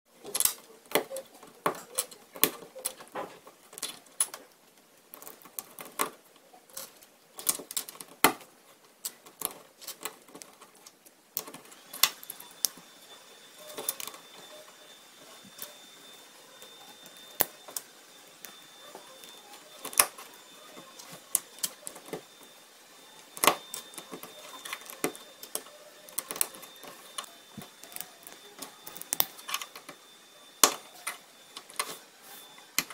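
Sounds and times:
faint high whine: 11.2s - 32.9s.

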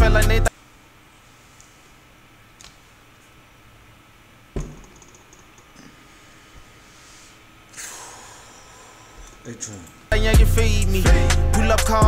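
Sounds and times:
soft rustling hiss: 0.5s - 4.5s.

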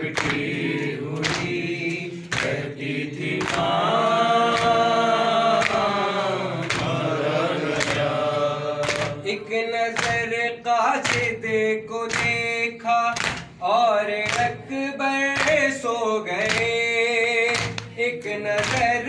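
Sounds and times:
men chanting in chorus: 0.0s - 19.0s
hands slapping chests: 0.1s - 2.7s, 3.3s - 4.9s, 5.5s - 9.3s, 9.9s - 10.3s, 11.0s - 11.4s, 12.1s - 12.4s, 13.2s - 13.6s, 17.5s - 17.9s
man singing lead: 9.1s - 19.0s.

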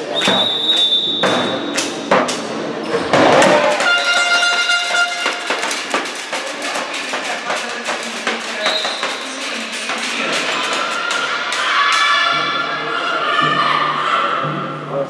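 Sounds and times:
crowd shouting and cheering: 0.0s - 15.0s
referee's whistle: 0.1s - 1.8s
ball thrown and knocking: 1.2s - 11.2s.

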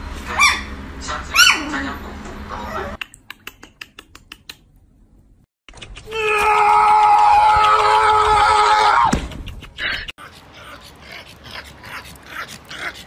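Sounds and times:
high-pitched wail: 6.1s - 9.1s.

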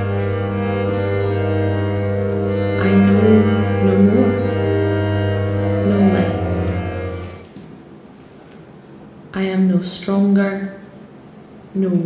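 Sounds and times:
instrumental music with low drone: 0.0s - 7.6s.

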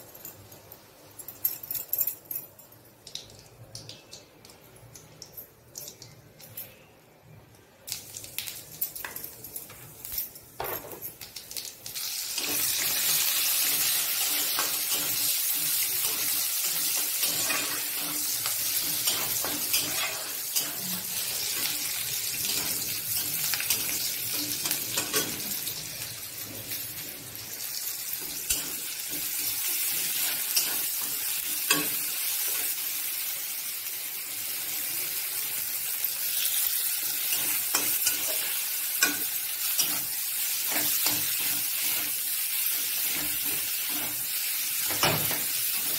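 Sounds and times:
vegetables sizzling in hot oil: 11.2s - 45.9s
metal spatula scraping: 12.4s - 25.6s.

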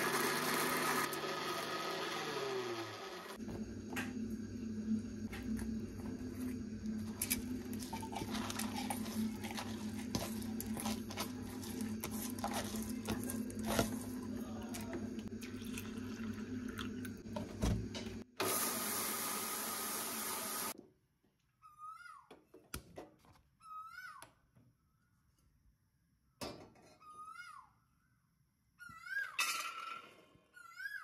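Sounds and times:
mixer grinder whirring: 0.0s - 20.8s.

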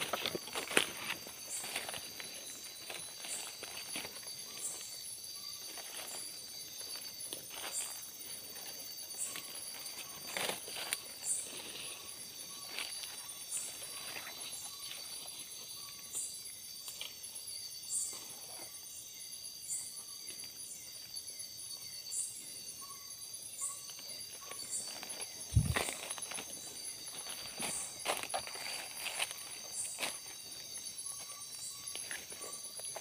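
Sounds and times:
footsteps through undergrowth: 0.0s - 15.2s, 24.0s - 33.0s
insects droning: 0.0s - 33.0s
short high insect chirps: 22.0s - 30.1s.

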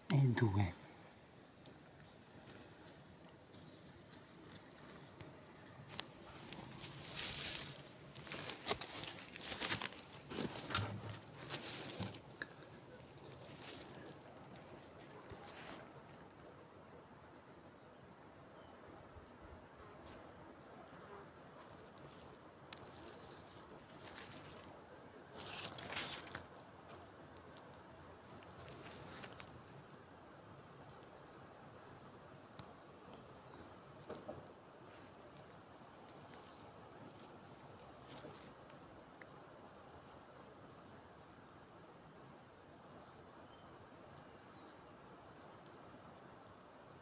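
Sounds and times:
rustling over stones and grass: 0.2s - 16.4s, 20.0s - 30.4s, 32.8s - 40.3s
small clicks and crackles: 1.6s - 16.5s, 20.0s - 30.0s, 32.6s - 40.2s.

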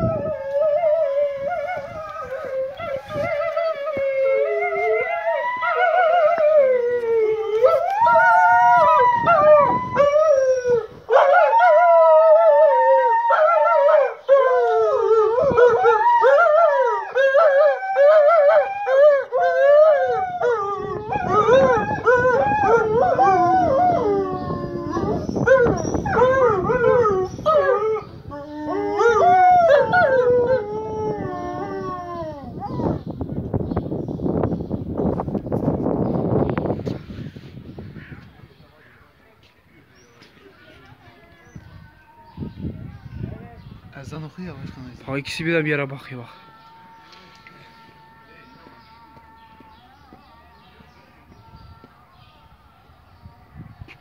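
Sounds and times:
wolves howling: 0.0s - 33.0s, 45.4s - 53.5s.

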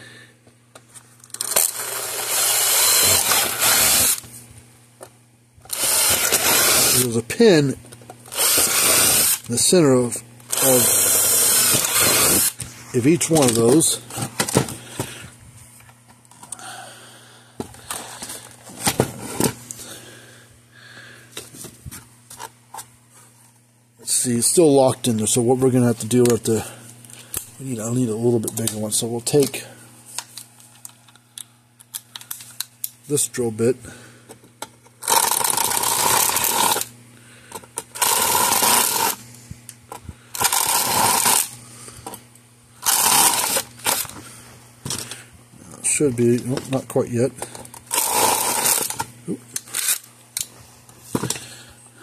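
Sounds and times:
steady low hum: 0.0s - 52.0s
impact driver drilling: 1.4s - 4.2s, 5.7s - 7.1s, 8.3s - 9.5s, 10.5s - 12.6s, 35.0s - 36.9s, 38.0s - 39.2s, 40.4s - 41.5s, 42.8s - 44.1s, 47.9s - 49.0s.

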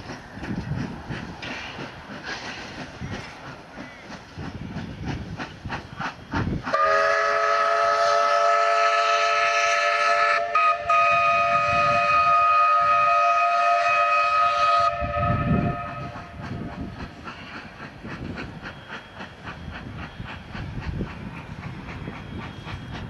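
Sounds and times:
steam locomotive exhaust beats: 0.0s - 23.0s
steam whistle chord: 6.8s - 16.2s.

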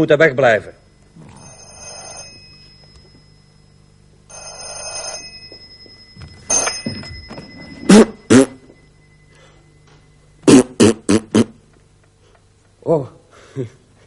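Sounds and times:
telephone bell ringing: 0.8s - 10.4s.

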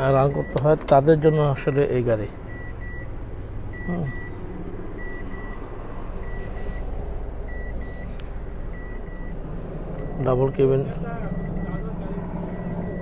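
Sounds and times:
low steady hum: 0.0s - 13.0s
electronic warning chime beeping: 3.7s - 4.4s, 5.0s - 5.6s, 7.5s - 8.1s, 10.0s - 11.9s, 12.5s - 13.0s.

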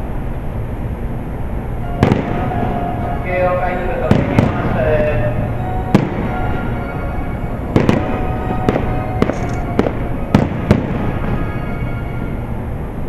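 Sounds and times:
music playing: 1.8s - 13.0s
firework shells bursting: 7.8s - 11.4s.

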